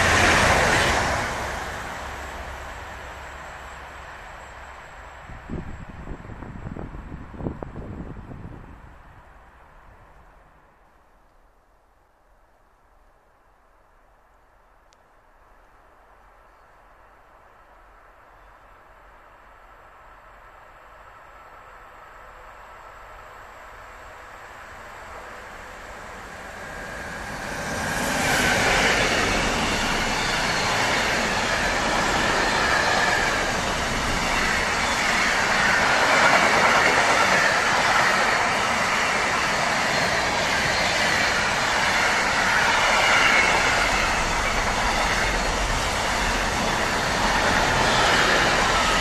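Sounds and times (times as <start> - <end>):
wheels rumbling on rail: 0.0 - 10.8, 21.6 - 49.0
freight train passing: 0.0 - 11.2, 15.8 - 49.0.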